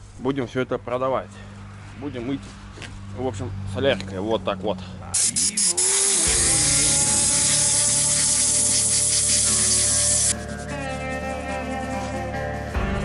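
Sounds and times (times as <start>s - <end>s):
air spray gun hissing: 5.2s - 10.5s.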